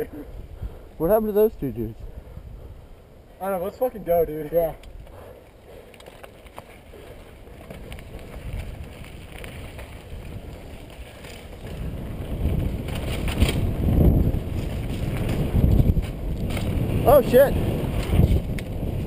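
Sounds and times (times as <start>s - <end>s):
wind rushing over microphone: 0.0s - 5.2s, 7.2s - 19.0s
bike tyres on dirt and gravel: 0.0s - 19.0s
bike rattling: 3.6s - 19.0s.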